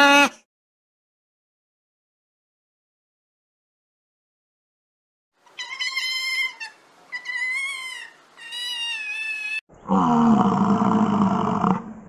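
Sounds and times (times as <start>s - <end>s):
bison low-pitched call: 9.8s - 12.0s.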